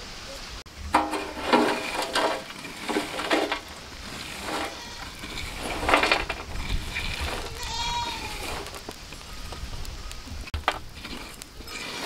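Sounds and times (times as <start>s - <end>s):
embers raked on metal tray: 0.9s - 9.4s, 10.5s - 12.0s.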